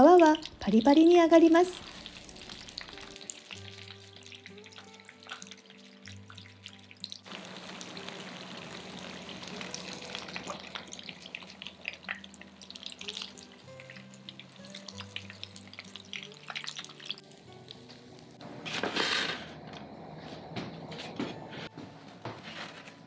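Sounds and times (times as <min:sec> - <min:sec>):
food deep-frying in oil: 0:00.0 - 0:18.4.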